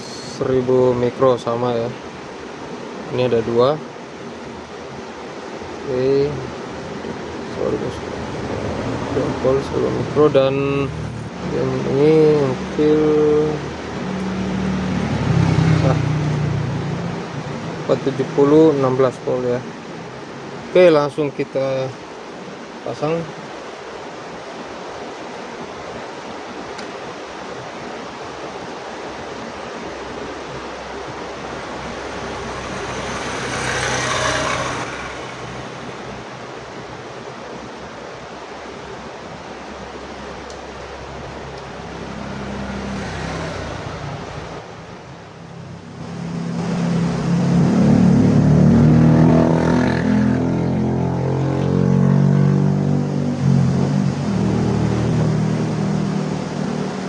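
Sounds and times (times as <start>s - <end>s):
steady background hiss: 0.0s - 57.0s
vehicle engine running: 30.8s - 36.6s.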